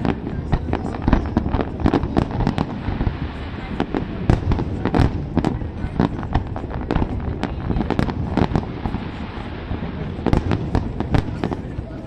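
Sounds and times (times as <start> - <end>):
low rumble of fireworks barrage: 0.0 - 12.0.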